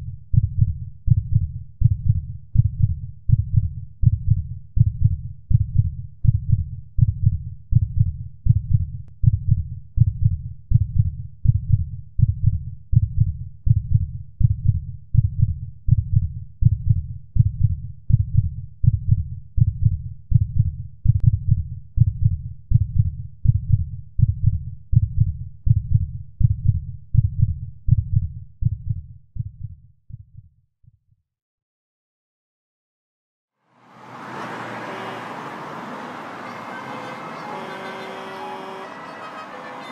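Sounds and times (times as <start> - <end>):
heartbeat thudding: 0.3 - 30.5.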